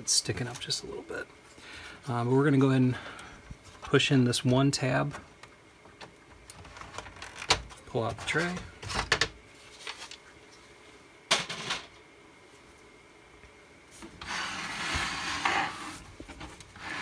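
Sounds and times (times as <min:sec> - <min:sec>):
metal chassis scraping on workbench: 0:14.2 - 0:16.0.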